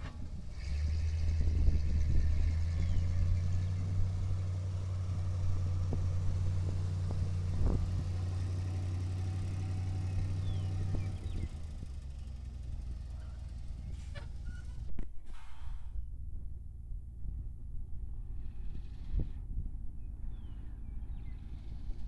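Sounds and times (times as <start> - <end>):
truck engine idling: 0.0 - 22.0.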